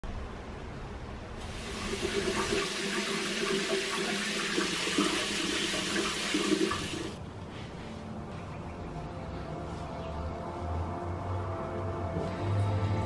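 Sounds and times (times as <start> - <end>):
water running from a tap: 1.4 - 7.2.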